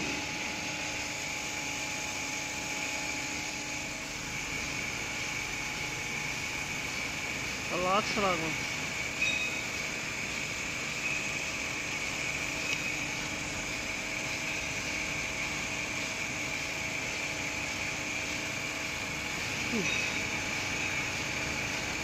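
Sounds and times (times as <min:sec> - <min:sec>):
folding machine humming and whining: 0:00.0 - 0:22.0.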